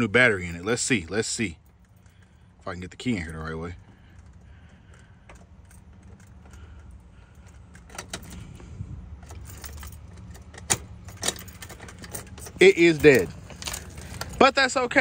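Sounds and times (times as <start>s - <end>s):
keys jangling: 1.6s - 14.6s
key clicking in ignition: 3.0s - 14.6s.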